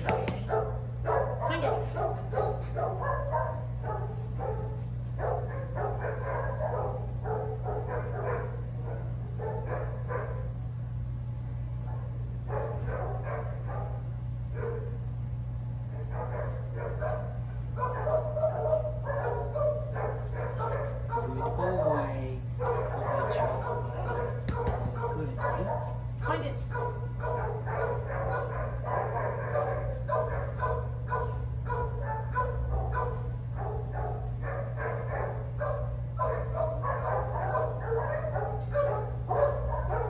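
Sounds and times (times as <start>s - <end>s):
steady low hum: 0.0s - 40.0s
dog panting: 22.6s - 31.4s.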